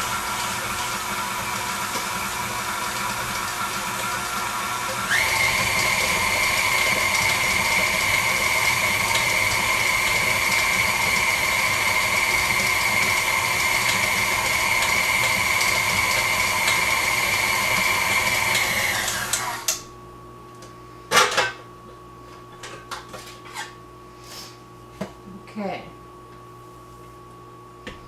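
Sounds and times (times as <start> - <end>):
stand mixer motor whining: 0.0 - 19.9.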